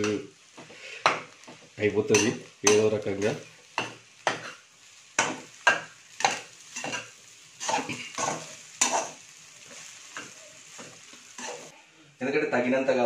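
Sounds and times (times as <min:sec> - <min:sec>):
rice frying in pan: 0:00.0 - 0:13.0
metal spatula scraping pan: 0:02.1 - 0:11.7.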